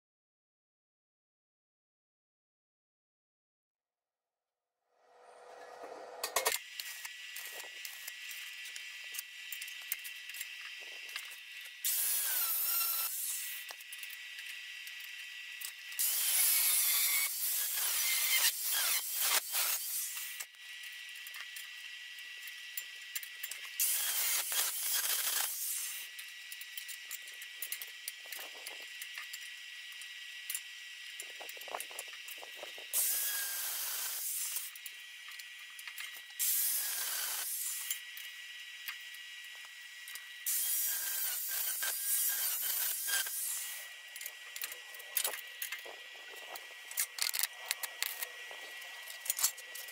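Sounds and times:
angle grinder whine: 4.9 - 8.1
arc welding crackling sizzle: 6.6 - 49.9.

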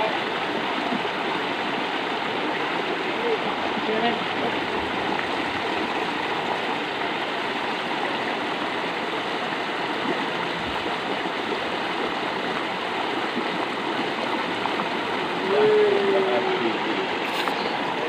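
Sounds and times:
water rushing along a ditch: 0.0 - 18.0.

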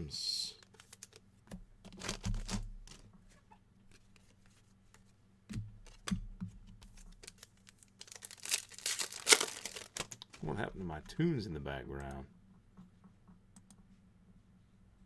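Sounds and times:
wrapper crinkling: 1.9 - 3.0, 6.9 - 10.4.

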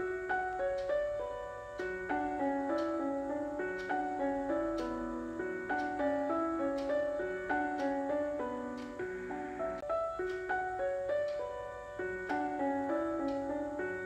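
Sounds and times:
gentle piano melody: 0.0 - 14.0.

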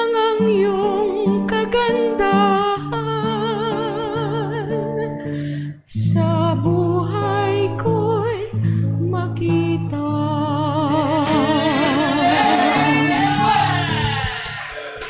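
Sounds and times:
woman singing a hymn: 0.0 - 5.1, 5.9 - 13.5
sustained instrumental accompaniment: 10.9 - 14.9.

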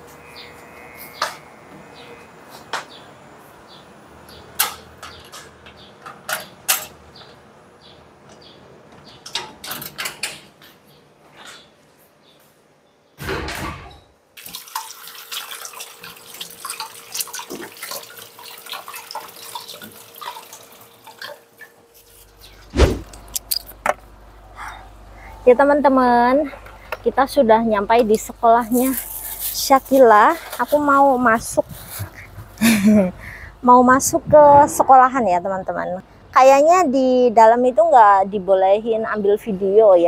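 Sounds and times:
wooden door shutting and latching: 13.2 - 14.1
tap water running: 14.4 - 21.8
loud bump: 22.7 - 23.1.

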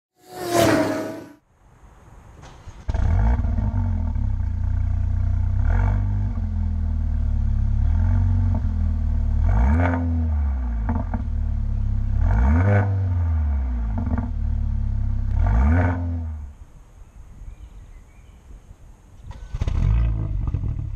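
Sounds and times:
exhaust pops: 2.4 - 6.5, 19.2 - 20.9
car engine revving and idling: 2.9 - 16.6, 19.3 - 20.9.

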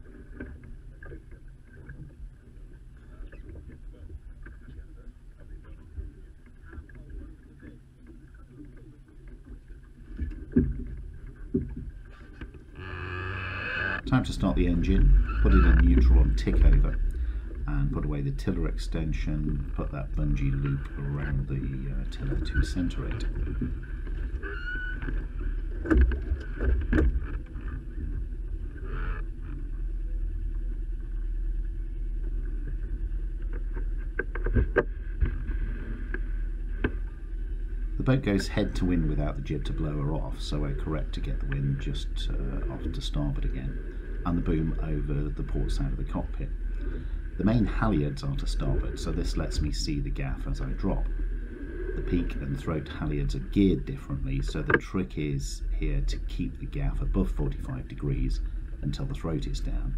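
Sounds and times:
water noise around a boat: 0.0 - 59.9
wind: 0.0 - 59.9
outboard motor idling: 12.6 - 24.5.

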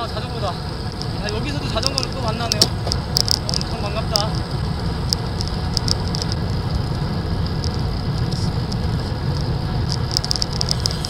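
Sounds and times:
road and tyre noise: 0.0 - 11.0
wind buffeting microphone: 0.0 - 11.0
light ticks: 1.8 - 6.6.

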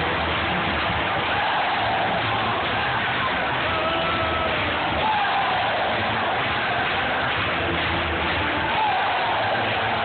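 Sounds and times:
arena crowd cheering: 0.0 - 10.0.

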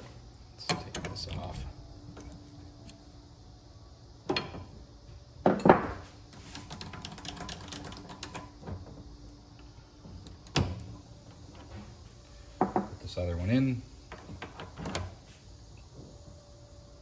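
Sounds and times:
small metallic clicks and rattles: 6.4 - 9.0.

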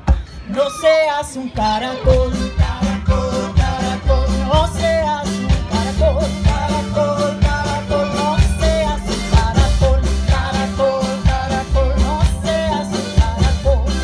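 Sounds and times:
acoustic folk band playing: 0.0 - 14.0.

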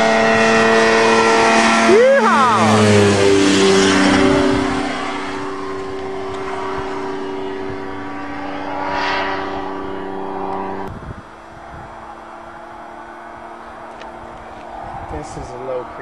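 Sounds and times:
rushing noise: 0.0 - 12.5
ultralight airplane engine droning: 0.0 - 16.0.

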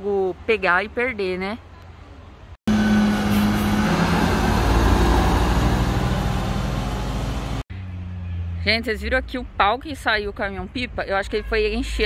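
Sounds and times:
heavy truck engine pulling away: 2.7 - 7.6.

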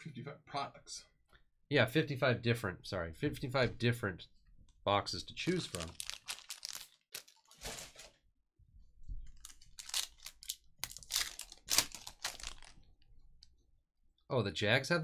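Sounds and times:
foil wrapper crinkling and tearing: 5.5 - 8.2, 9.4 - 12.9.

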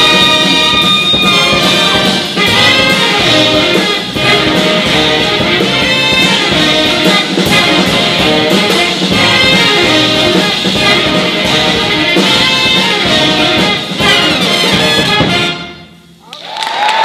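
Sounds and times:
jazz big band playing: 0.0 - 16.2.

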